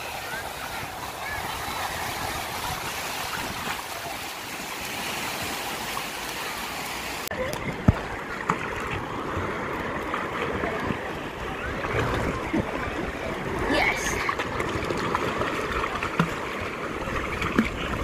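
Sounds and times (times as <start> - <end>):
surf breaking and washing: 0.0 - 18.0
water lapping around boat: 0.0 - 18.0.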